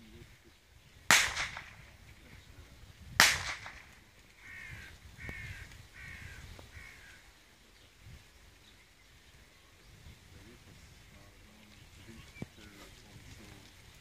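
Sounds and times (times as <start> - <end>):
blank pistol shots: 1.1 - 2.0, 3.2 - 4.0
bird harsh calls: 3.3 - 8.0.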